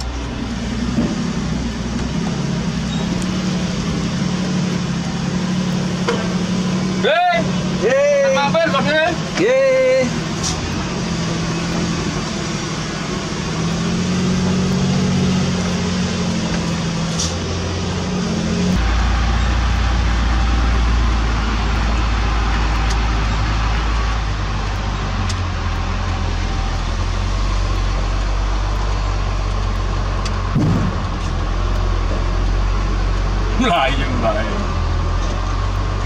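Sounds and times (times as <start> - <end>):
diesel engine running: 0.0 - 36.0
short thump: 30.5 - 31.4.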